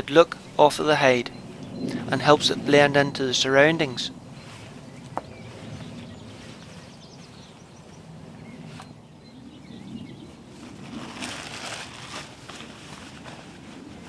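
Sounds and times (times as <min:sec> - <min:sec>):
faint birdsong: 0:00.0 - 0:12.2
netting and clothing rustling: 0:10.3 - 0:14.0.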